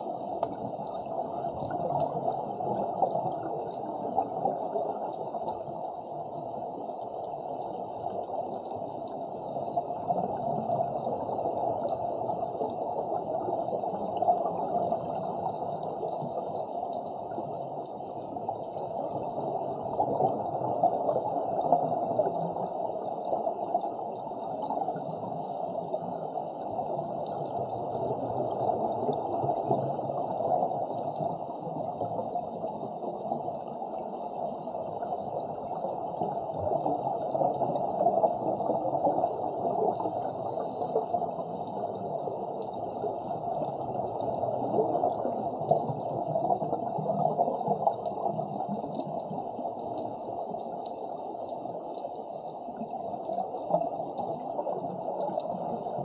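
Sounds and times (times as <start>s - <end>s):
muffled underwater water noise: 0.0s - 56.0s.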